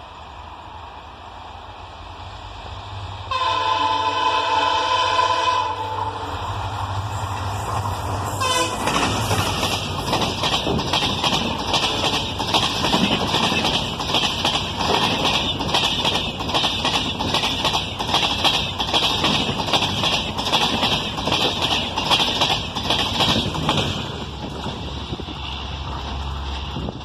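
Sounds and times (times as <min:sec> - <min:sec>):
rushing noise of passing train: 0:00.0 - 0:27.0
train wheels clattering over rails: 0:06.9 - 0:27.0.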